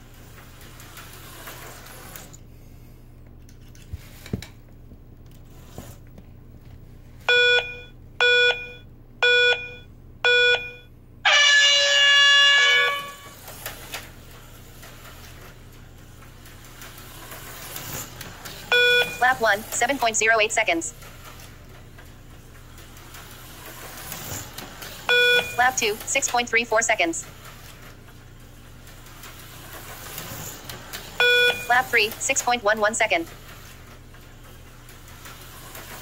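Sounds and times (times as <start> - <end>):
short countdown beeps: 7.3 - 10.9, 18.7 - 19.6, 25.1 - 27.0, 31.2 - 33.1.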